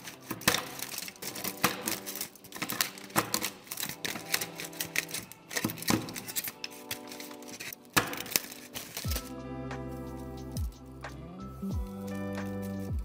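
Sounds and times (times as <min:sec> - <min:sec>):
knife chopping chocolate: 0:00.0 - 0:09.3.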